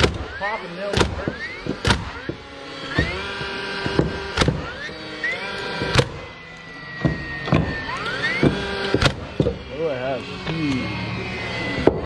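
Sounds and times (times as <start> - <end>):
nail gun shots into wood: 0.0 - 0.3, 0.9 - 2.4, 3.0 - 4.8, 5.8 - 6.2, 8.4 - 9.6
motor whine: 0.0 - 12.0.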